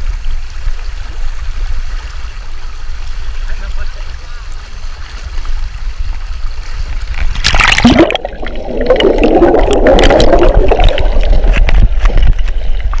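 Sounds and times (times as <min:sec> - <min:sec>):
underwater bubbling gurgle: 0:00.0 - 0:13.0
camera splashing into water: 0:07.1 - 0:13.0
underwater clicks: 0:07.1 - 0:13.0.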